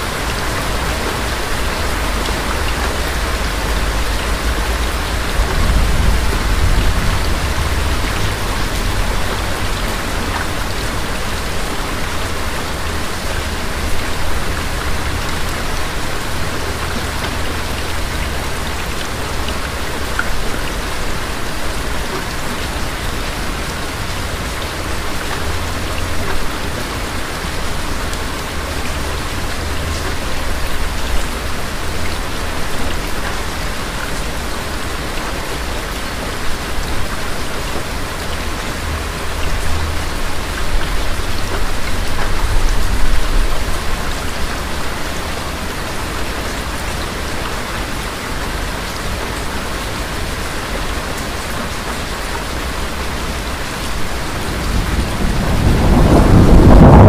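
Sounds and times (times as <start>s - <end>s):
steady rain falling: 0.0s - 57.0s
rolling thunder rumble: 4.3s - 11.0s, 53.9s - 57.0s.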